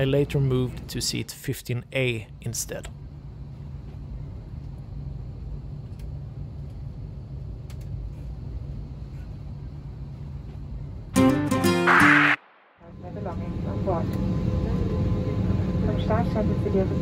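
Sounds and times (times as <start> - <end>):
cabin ventilation hum and air rush: 0.0 - 11.2
loud multi-tone pitched sound: 11.2 - 12.8.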